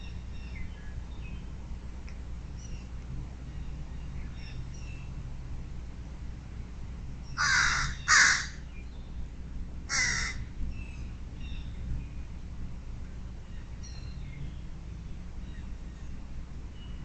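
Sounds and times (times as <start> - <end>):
faint songbird chirps: 0.0 - 5.3, 7.2 - 9.4, 10.6 - 17.0
crow cawing: 7.4 - 8.6, 9.9 - 10.5.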